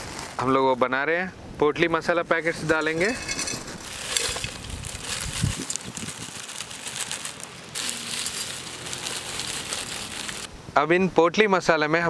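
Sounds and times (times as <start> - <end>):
dry spices falling into metal pot: 2.8 - 6.4
plastic bag crinkling: 2.8 - 10.5.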